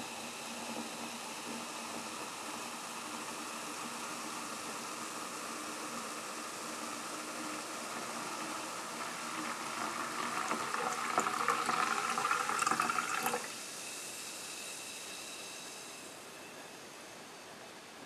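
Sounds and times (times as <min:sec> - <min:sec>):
drink pouring into a glass: 0:08.0 - 0:13.6.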